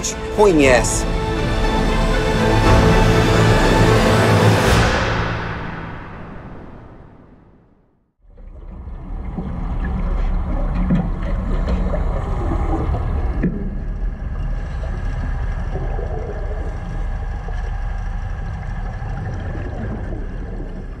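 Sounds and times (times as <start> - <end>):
boat engine rumbling: 8.3 - 21.0.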